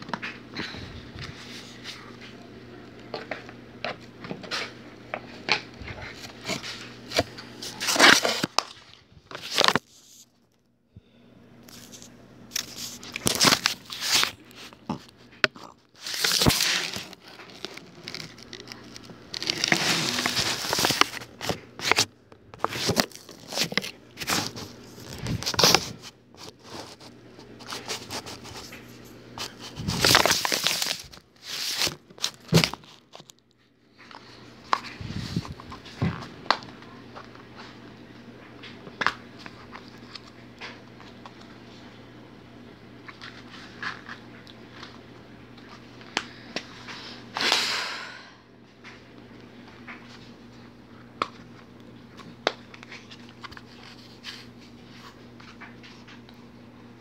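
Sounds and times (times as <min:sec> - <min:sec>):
faint steady hum: 0:00.0 - 0:57.0
crackling and rustling: 0:11.6 - 0:41.5.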